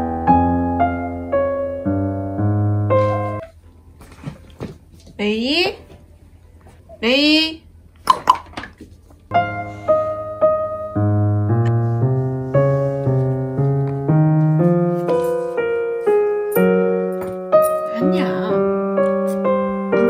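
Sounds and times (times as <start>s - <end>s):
gentle piano tune: 0.0s - 3.6s, 9.3s - 20.0s.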